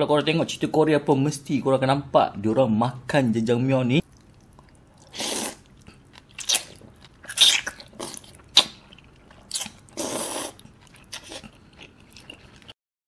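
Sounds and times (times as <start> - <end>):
chewing smacks: 4.0 - 12.8
person slurping noodles: 5.0 - 5.9, 9.9 - 11.6.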